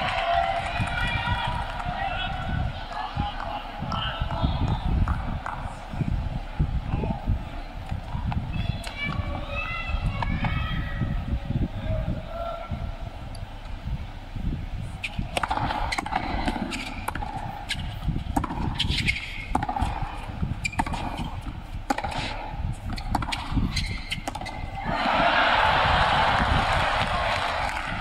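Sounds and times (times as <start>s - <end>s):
crowd cheering and applauding: 0.0s - 3.1s, 24.9s - 28.0s
ball bouncing: 3.4s - 5.7s, 15.3s - 24.7s
racket hitting tennis ball: 15.0s - 25.3s.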